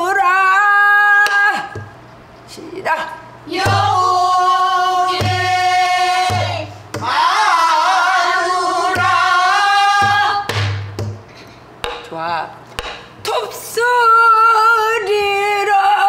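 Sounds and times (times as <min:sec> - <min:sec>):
low barrel drum strokes: 0:05.0 - 0:07.2.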